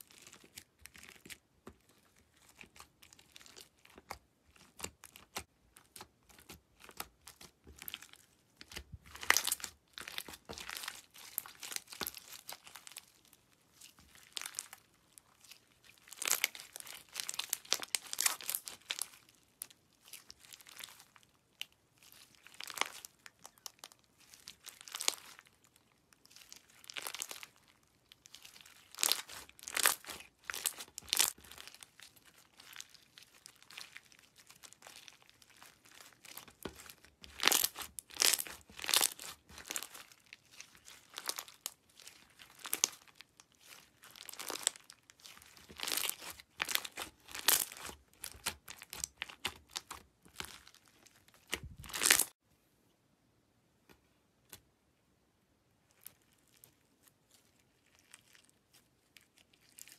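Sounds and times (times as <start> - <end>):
slime crackling and tearing: 0.0 - 52.4, 55.9 - 59.9.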